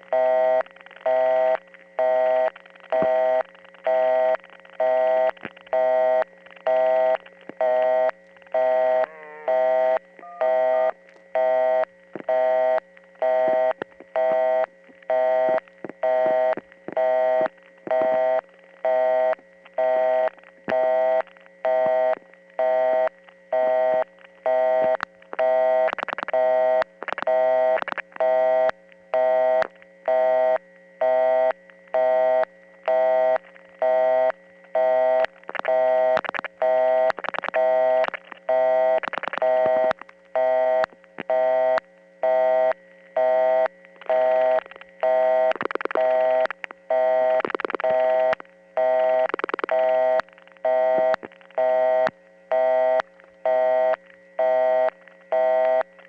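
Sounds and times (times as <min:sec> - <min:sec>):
low hum: 0:00.0 - 0:56.0
telephone busy signal: 0:00.1 - 0:55.9
dial pulse clicks: 0:00.1 - 0:56.0.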